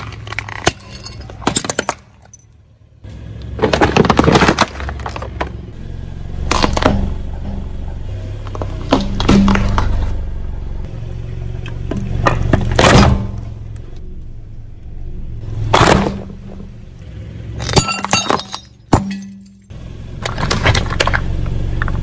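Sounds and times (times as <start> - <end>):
tyres crushing brittle objects: 0.0 - 2.4, 3.5 - 5.7
engine humming low: 0.0 - 22.0.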